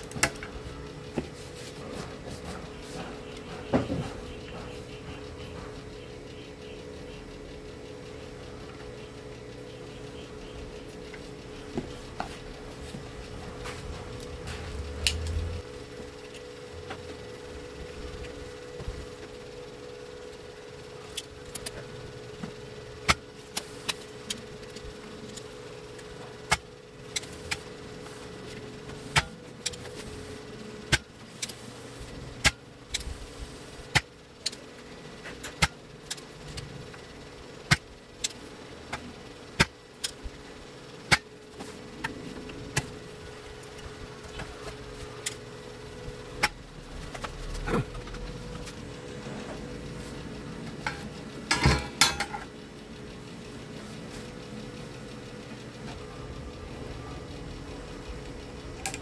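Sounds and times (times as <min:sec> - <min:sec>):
steady low hum: 0:00.0 - 0:59.0
desoldering pump clicks: 0:14.2 - 0:30.1, 0:41.0 - 0:59.0.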